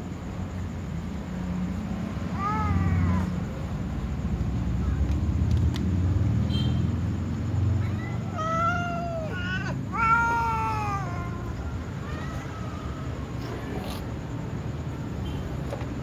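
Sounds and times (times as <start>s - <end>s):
cats meowing: 2.2s - 3.6s, 7.7s - 14.1s.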